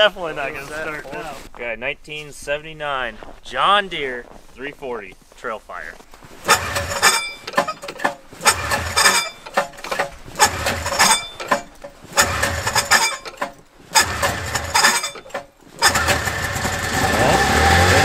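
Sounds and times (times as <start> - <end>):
engine turning over: 6.4 - 18.0
recoil pull-starter pulls: 6.4 - 18.0.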